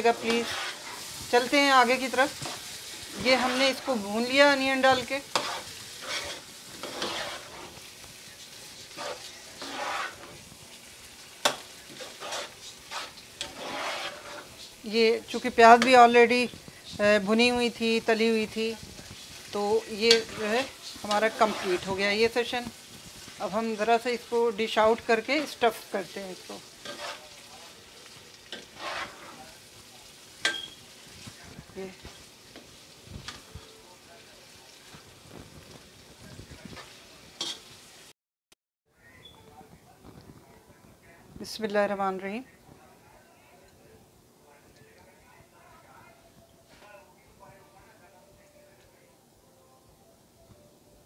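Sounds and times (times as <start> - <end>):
metal spatula scraping pan: 0.0 - 16.6, 19.0 - 27.5, 28.4 - 29.6, 30.4 - 31.4, 36.6 - 37.7
meat frying sizzle: 0.0 - 38.1
spoon clinking against pot: 30.4 - 30.8.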